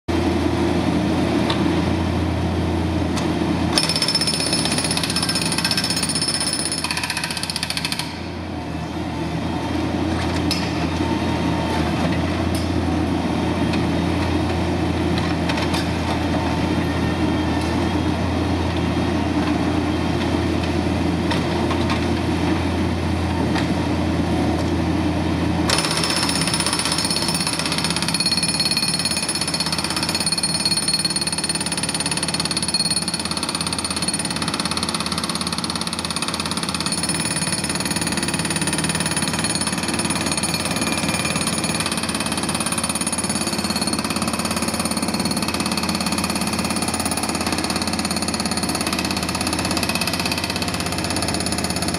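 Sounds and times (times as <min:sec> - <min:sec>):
hydraulic breaker hammering concrete: 0:03.7 - 0:08.4, 0:25.7 - 0:51.9.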